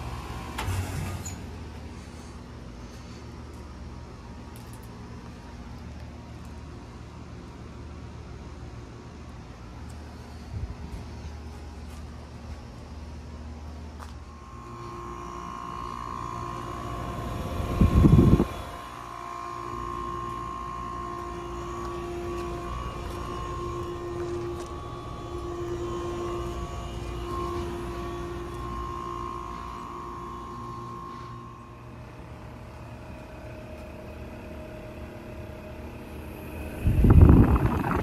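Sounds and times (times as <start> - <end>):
air conditioner fan and compressor hum: 0.0 - 38.0
loud low rumble: 36.6 - 38.0.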